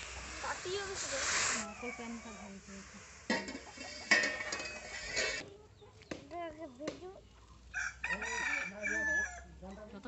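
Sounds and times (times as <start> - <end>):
chickens clucking: 0.0 - 6.2.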